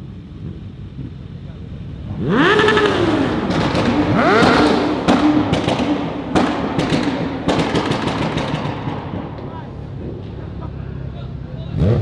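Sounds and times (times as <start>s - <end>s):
car engine revving: 2.0s - 10.6s, 11.6s - 12.0s
exhaust bangs: 2.0s - 10.9s.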